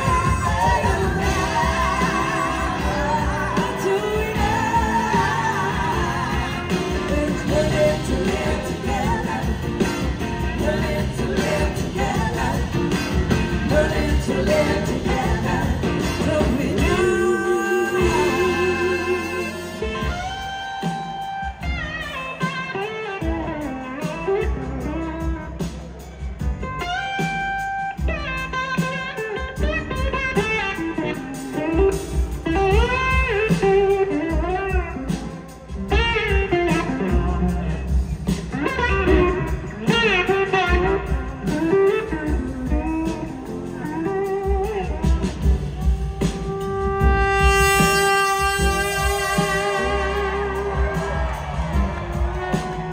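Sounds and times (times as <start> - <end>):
live rock band: 0.0 - 52.9
electric slide guitar solo: 41.7 - 52.9.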